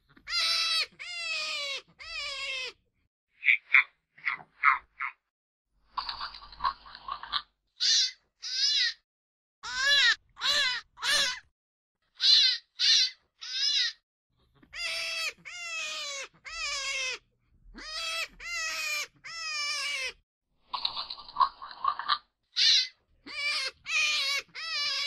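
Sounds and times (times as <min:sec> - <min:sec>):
animal calls: 0:00.0 - 0:02.8, 0:12.1 - 0:25.0.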